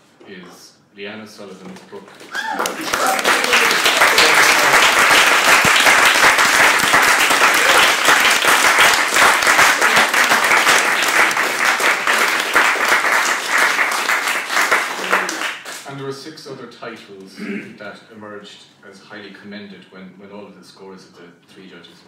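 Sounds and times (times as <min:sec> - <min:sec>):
audience applauding: 0:02.3 - 0:15.8.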